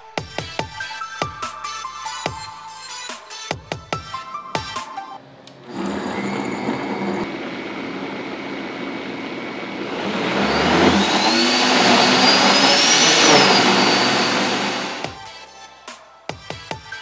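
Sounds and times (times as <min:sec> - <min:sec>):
blender motor whining: 0:05.6 - 0:15.2.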